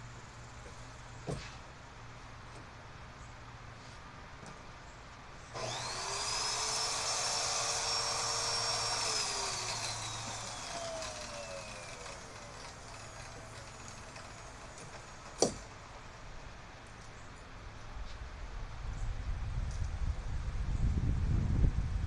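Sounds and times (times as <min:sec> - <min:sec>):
electric drill whining: 0:05.5 - 0:15.4.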